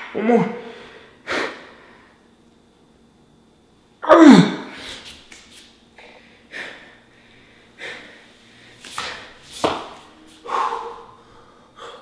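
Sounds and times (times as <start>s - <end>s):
heavy sharp breaths: 6.0s - 12.0s.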